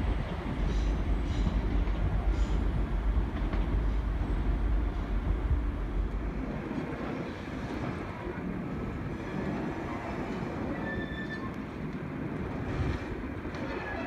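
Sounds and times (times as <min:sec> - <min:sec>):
heavy train rumble: 0:00.0 - 0:14.0.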